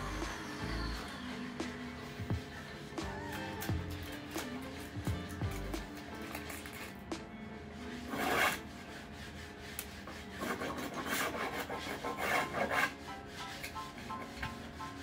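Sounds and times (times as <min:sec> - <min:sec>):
tool scraping wood: 0:08.0 - 0:15.0.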